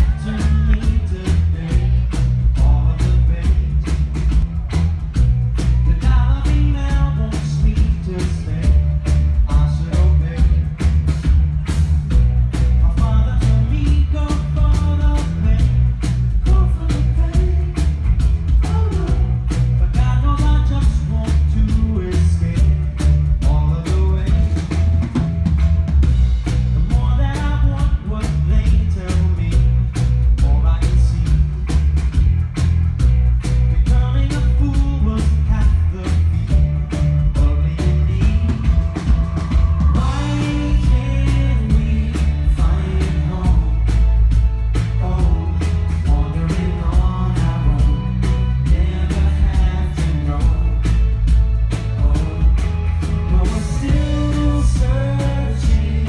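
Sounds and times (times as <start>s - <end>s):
man singing into microphone: 0.0s - 3.9s, 5.9s - 10.7s, 12.8s - 17.8s, 19.8s - 24.6s, 26.9s - 29.8s, 33.8s - 36.3s, 37.2s - 39.1s, 39.9s - 43.9s, 45.0s - 50.8s, 52.0s - 56.0s
live band playing: 0.0s - 56.0s.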